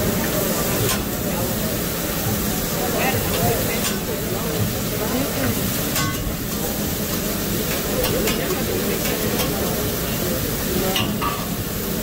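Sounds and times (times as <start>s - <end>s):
steak sizzling on griddle: 0.0s - 12.0s.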